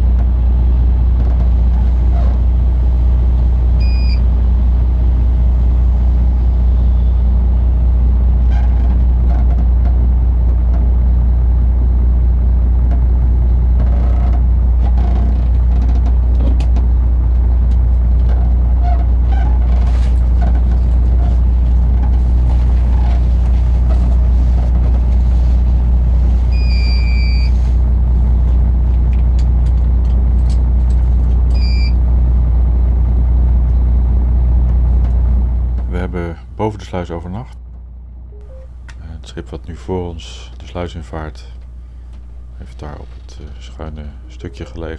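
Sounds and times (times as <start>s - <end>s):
diesel engine rumbling: 0.0s - 44.9s
short high electronic beep: 38.4s - 38.7s.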